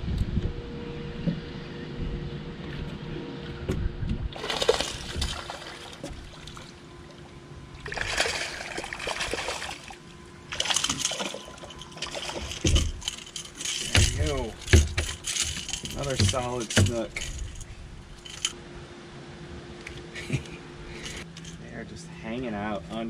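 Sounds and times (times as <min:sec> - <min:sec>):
fish splashing at water surface: 0:04.4 - 0:06.8, 0:07.8 - 0:17.5.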